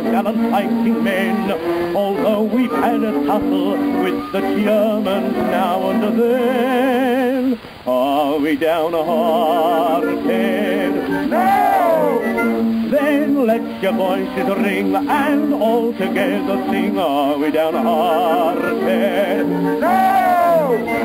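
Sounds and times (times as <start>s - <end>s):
musical accompaniment: 0.0s - 21.0s
person singing with vibrato: 0.0s - 21.0s.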